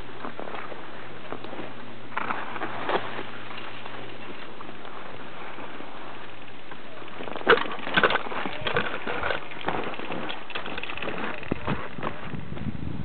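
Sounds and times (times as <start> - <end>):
skis sliding over snow: 0.0 - 12.7
ski scrapes: 0.2 - 6.3.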